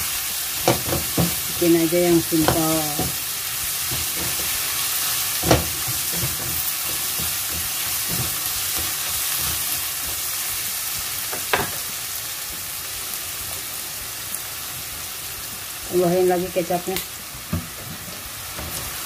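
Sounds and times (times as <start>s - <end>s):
food sizzling in a wok: 0.0s - 19.0s
spatula knocking on a pan: 0.6s - 1.6s, 2.4s - 3.2s, 5.4s - 10.2s, 11.3s - 11.9s
spatula scraping a pan: 2.3s - 10.5s.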